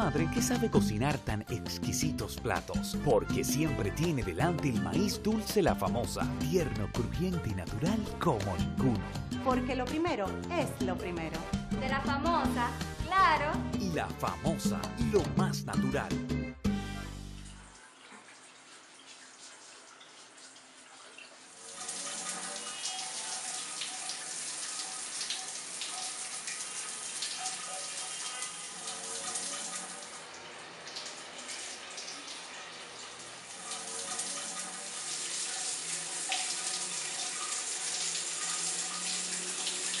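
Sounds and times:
shower water spraying: 17.4 - 40.0.

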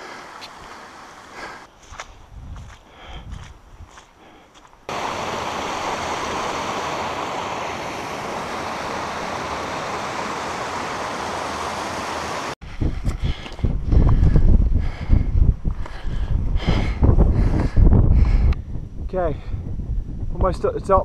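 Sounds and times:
stream rushing over rocks: 4.9 - 12.6.

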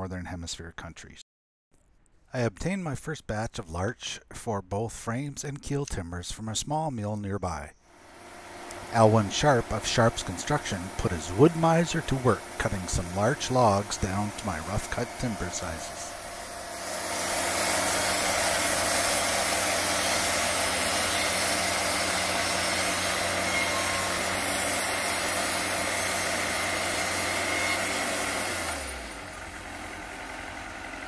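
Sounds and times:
band saw cutting through log: 7.9 - 31.0
engine working under load: 7.9 - 31.0.

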